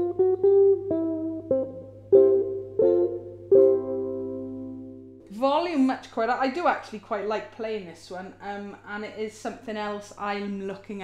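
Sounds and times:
electric ukulele notes and chords: 0.0 - 5.2.

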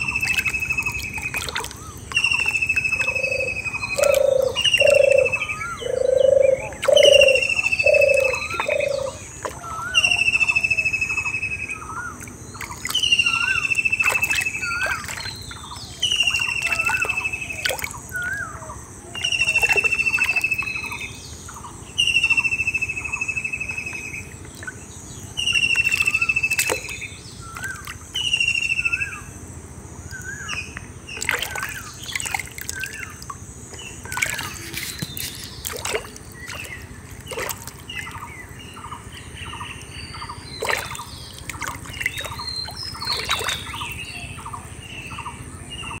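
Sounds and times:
birds chirping: 0.0 - 46.0
footsteps splashing through mud: 34.1 - 38.2.

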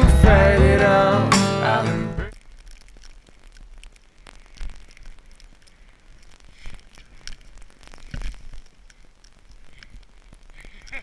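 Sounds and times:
camera crackling and rustling: 2.3 - 11.0.

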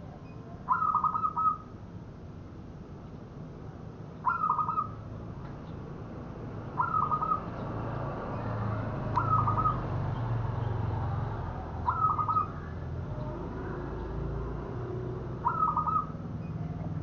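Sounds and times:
dove staccato cooing: 4.2 - 5.0, 6.7 - 7.6, 9.0 - 10.0, 11.4 - 17.0.

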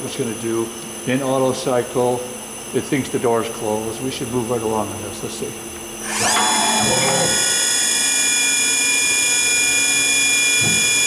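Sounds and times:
lathe spindle whining: 6.0 - 11.0.

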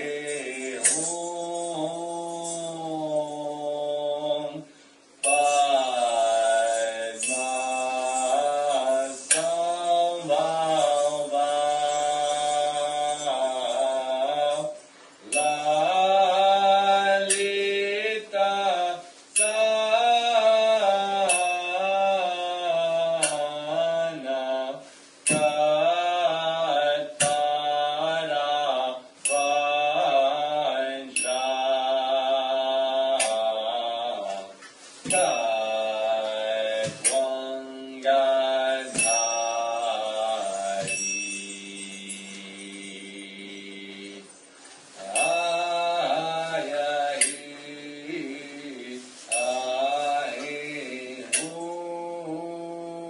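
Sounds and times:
hand cymbals ringing: 0.0 - 3.9, 5.2 - 18.3, 19.1 - 24.0, 25.2 - 26.5, 29.2 - 33.7, 35.0 - 52.5
person chanting slow melody: 0.0 - 53.0
bright ringing metal strike: 5.2 - 14.3, 15.3 - 16.4, 21.2 - 21.9, 25.3 - 25.9, 29.2 - 30.1, 31.2 - 31.8, 35.1 - 35.9, 38.8 - 44.4, 45.1 - 46.6.

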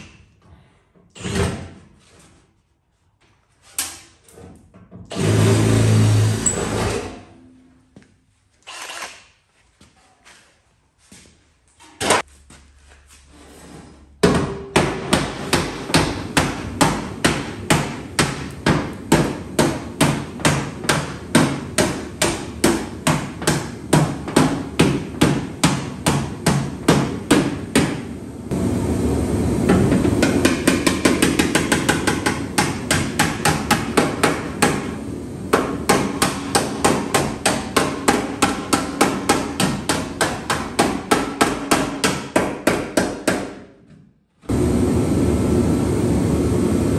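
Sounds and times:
hammer striking sheet metal: 14.2 - 28.1, 29.7 - 43.7.

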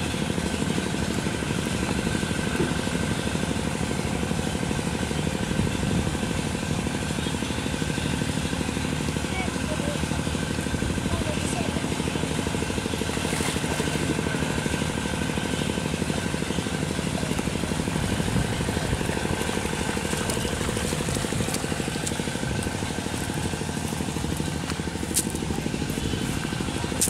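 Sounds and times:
small engine running: 0.0 - 27.0.

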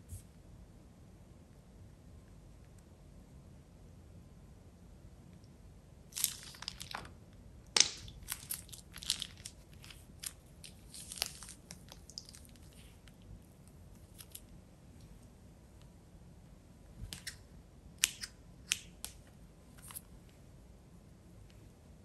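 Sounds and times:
plastic bag crinkling: 6.2 - 7.1, 7.8 - 13.0.

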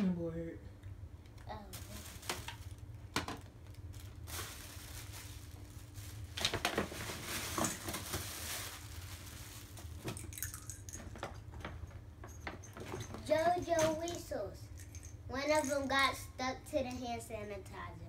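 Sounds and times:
tissue paper and gift bag rustling: 1.6 - 2.9, 3.8 - 10.4.

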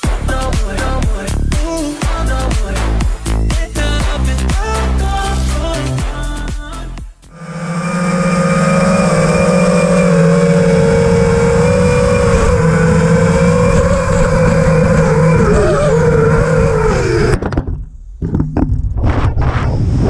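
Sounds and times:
quadcopter motors whining: 7.3 - 17.4.

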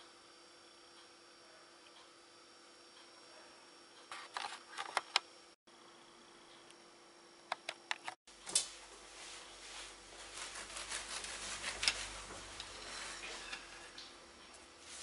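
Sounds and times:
knife sawing through bread: 10.4 - 11.8.

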